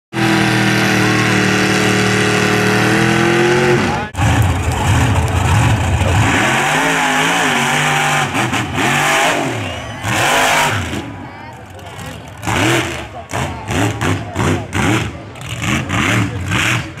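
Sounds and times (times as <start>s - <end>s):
truck engine revving: 0.1s - 17.0s.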